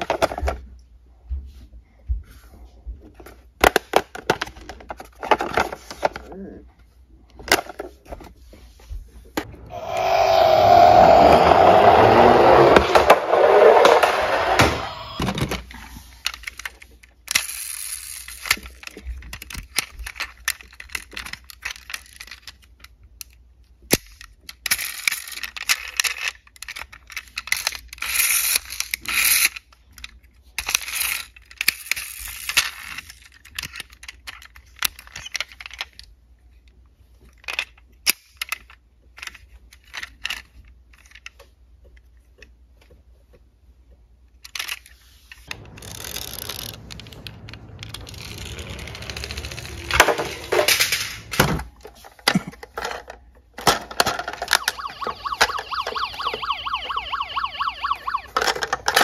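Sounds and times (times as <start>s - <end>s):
toy cars clattering: 0.0s - 0.7s, 3.1s - 8.4s, 9.3s - 59.0s
toy car wheels rolling: 9.5s - 36.2s, 37.2s - 41.5s, 44.4s - 59.0s.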